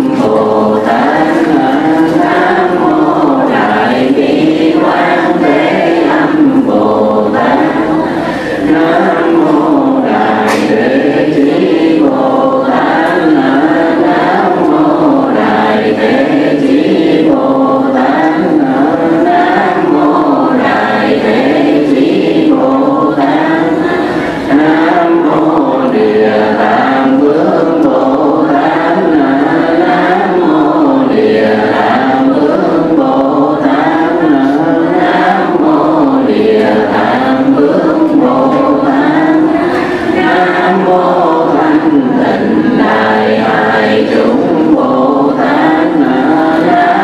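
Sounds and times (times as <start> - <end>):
voices chanting in unison: 0.0 - 47.0.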